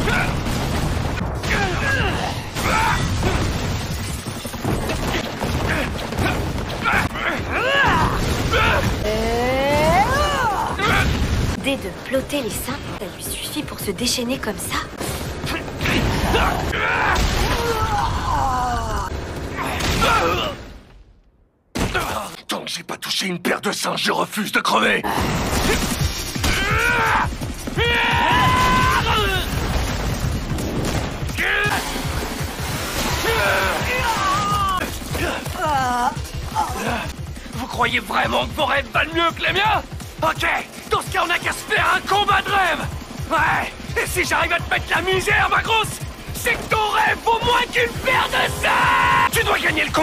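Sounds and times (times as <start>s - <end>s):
rumble of crashing debris: 0.0s - 9.1s, 25.4s - 35.6s
monster shrieking: 26.4s - 29.6s, 33.1s - 36.2s, 46.9s - 49.9s.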